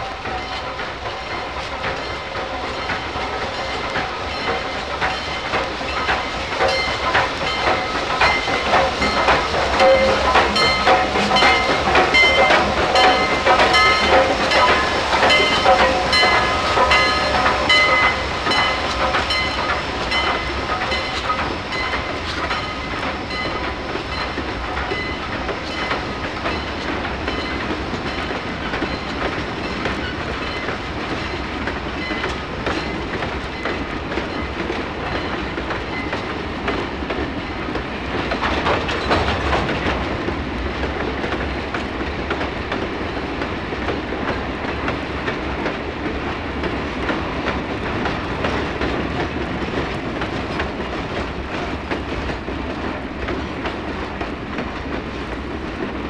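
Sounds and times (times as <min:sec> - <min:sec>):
train wheels clicking over rail joints: 0:00.0 - 0:56.0
crossing gate bell ringing: 0:03.6 - 0:24.4.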